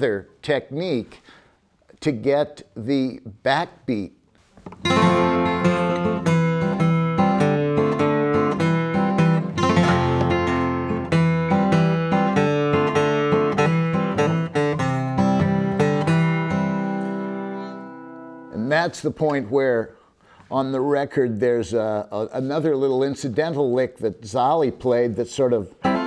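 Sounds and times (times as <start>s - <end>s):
fingerpicked acoustic guitar chords: 4.7s - 18.7s, 25.8s - 26.0s.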